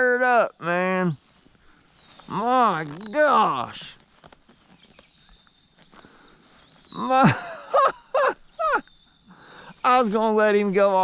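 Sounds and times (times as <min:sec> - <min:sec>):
crickets trilling: 0:00.0 - 0:11.0
man groaning: 0:07.0 - 0:07.4.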